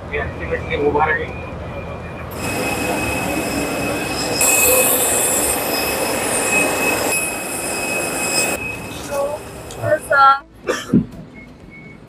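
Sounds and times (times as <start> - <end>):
jet turbine whine: 2.3 - 10.2.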